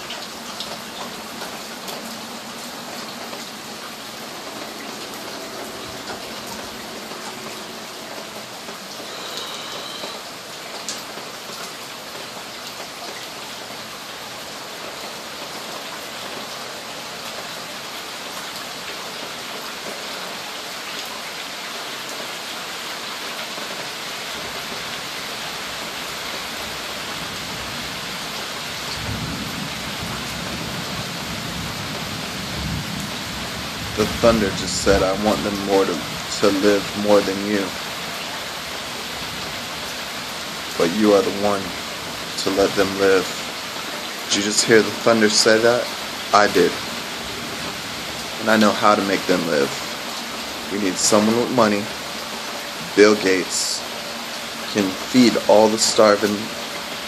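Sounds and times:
rain hissing: 0:00.0 - 0:57.0
thunder rumbling: 0:28.9 - 0:37.0.

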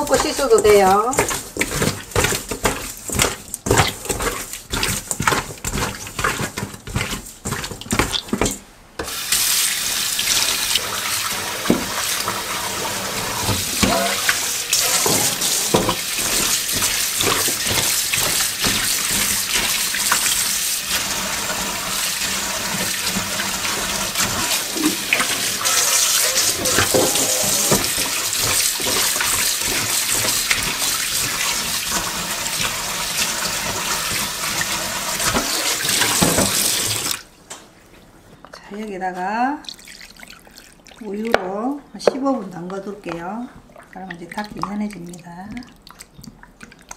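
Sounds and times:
splashes and knocks in bowl: 0:00.0 - 0:08.6, 0:11.6 - 0:12.4, 0:13.4 - 0:21.1, 0:22.7 - 0:36.7, 0:39.6 - 0:46.9
tap running into metal sink: 0:11.6 - 0:12.1, 0:13.4 - 0:20.3, 0:24.2 - 0:30.8, 0:35.2 - 0:37.2.

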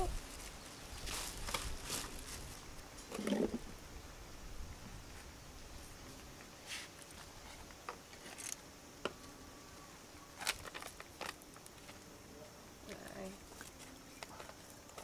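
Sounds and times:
paper rustling: 0:10.4 - 0:12.0.

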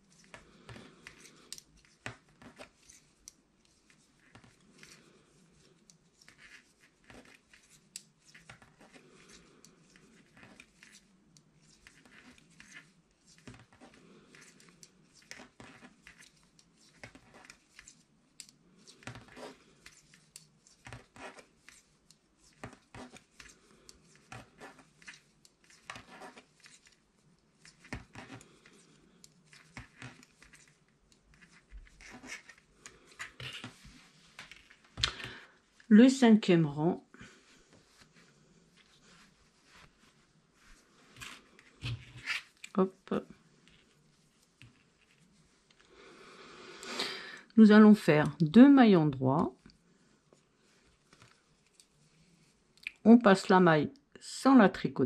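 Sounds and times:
yarn rubbing: 0:00.0 - 0:35.0, 0:37.7 - 0:45.8
knitting needles clicking: 0:14.3 - 0:19.2.

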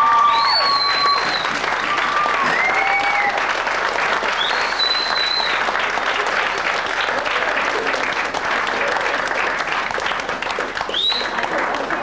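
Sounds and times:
high whistle from crowd: 0:00.0 - 0:05.6, 0:10.8 - 0:12.0
crowd applauding: 0:00.0 - 0:12.0.

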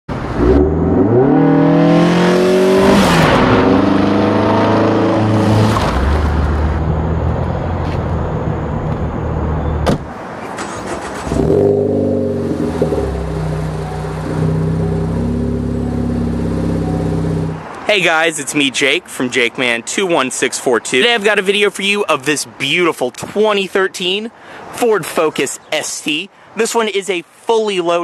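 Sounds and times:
car engine revving: 0:00.1 - 0:07.8, 0:10.4 - 0:17.8.

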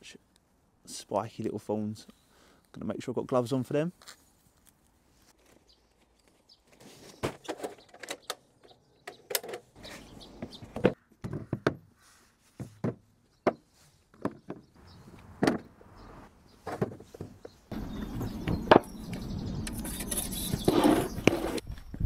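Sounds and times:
wooden board laid down: 0:16.6 - 0:17.4.

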